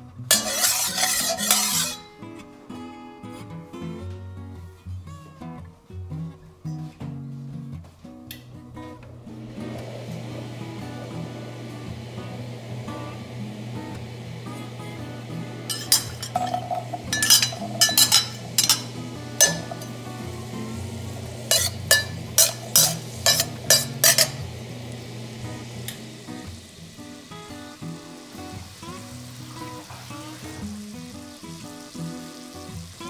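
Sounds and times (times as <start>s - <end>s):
carrots sizzling in hot oil: 0.2s - 2.1s, 9.4s - 33.0s
metal ladle scraping pan: 0.3s - 2.1s, 15.7s - 20.6s, 21.3s - 24.5s.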